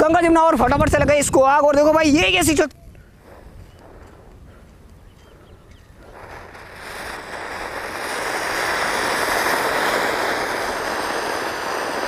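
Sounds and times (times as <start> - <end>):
firework fountain hissing: 3.1 - 12.0.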